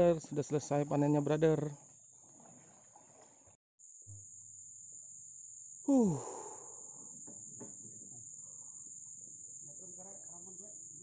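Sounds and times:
insects droning: 0.0 - 11.0
man grunting: 5.9 - 6.4.

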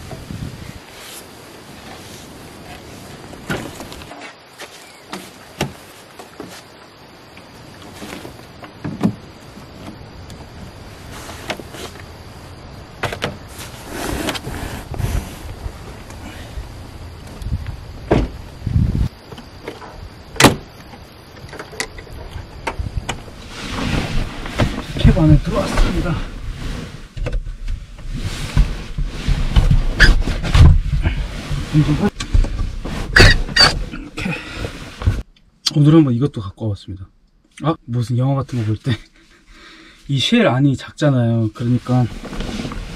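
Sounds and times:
rustling: 0.0 - 7.0, 7.6 - 16.6, 23.3 - 35.3, 41.6 - 42.9
knocks and clunks: 5.1 - 6.5, 8.1 - 10.5, 13.0 - 13.5, 17.2 - 18.4, 19.3 - 23.3.

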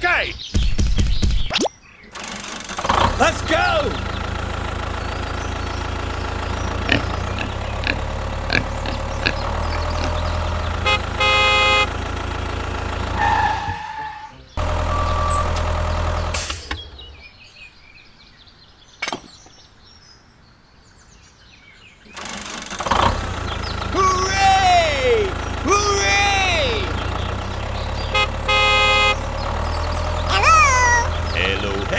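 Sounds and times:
tractor engine running: 2.1 - 13.9, 14.5 - 17.2, 22.1 - 31.9
horn honk: 10.7 - 12.1, 13.2 - 15.7, 27.9 - 29.6.

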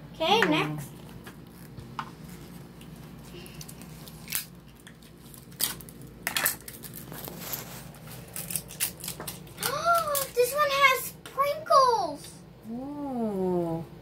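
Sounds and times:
plastic wrapper rustling: 1.4 - 10.6.

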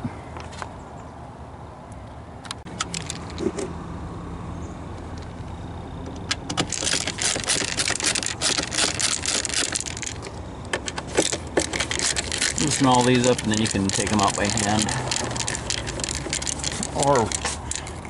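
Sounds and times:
screwdriver clicking and scraping: 6.4 - 18.0.

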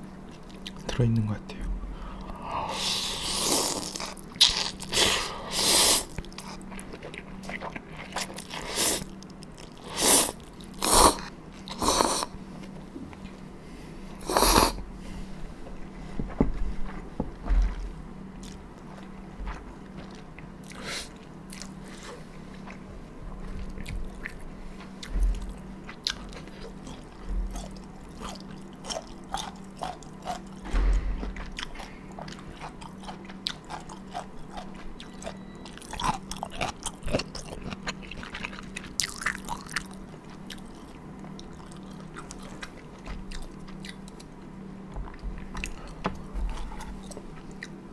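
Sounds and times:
person chewing with wet smacking: 0.2 - 1.0, 6.0 - 12.3, 17.6 - 22.8, 23.4 - 47.8
person slurping soup: 2.7 - 4.0, 14.2 - 14.8.

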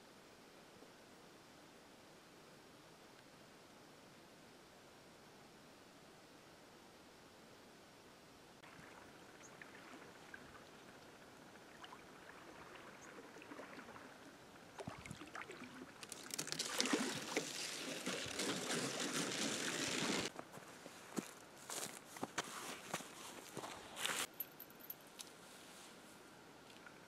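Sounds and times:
paddle strokes and water splashing: 8.6 - 20.3.

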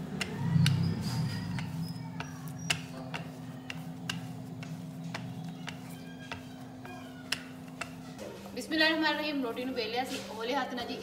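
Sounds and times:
rolling pin rolling dough: 0.0 - 11.0
steady low hum: 0.0 - 11.0
rolling pin knocking on board: 1.5 - 8.1.

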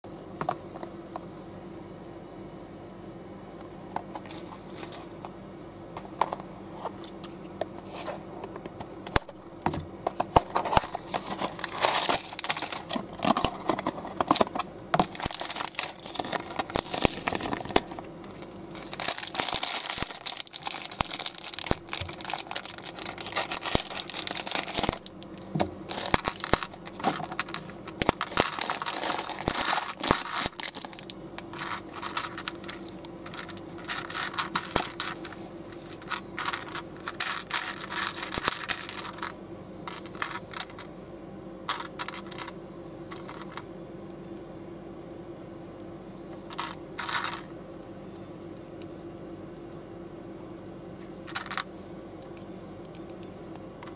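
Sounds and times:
plastic bricks clicking and rattling: 10.2 - 18.1, 18.8 - 25.2, 25.9 - 35.2, 36.0 - 39.3, 39.9 - 40.9, 41.7 - 43.6, 46.5 - 47.4, 51.3 - 51.6
plastic bags crinkling and tearing: 10.4 - 35.3, 36.0 - 39.2.

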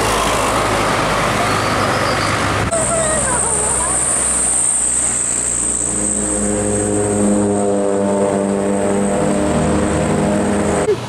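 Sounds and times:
diesel bus engine passing: 0.0 - 11.0
high-pitched whine: 1.4 - 10.8.

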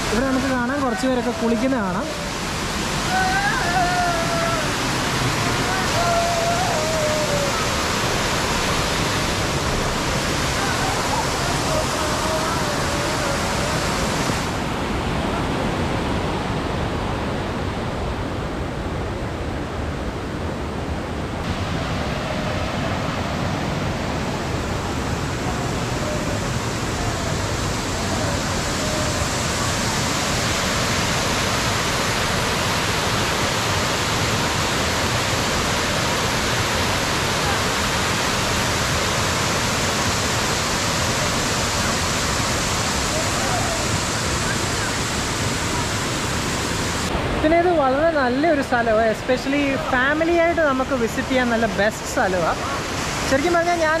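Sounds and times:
waterfall rushing over rocks: 0.0 - 54.0
faint voices: 9.9 - 14.3, 24.2 - 29.6, 42.8 - 46.0.

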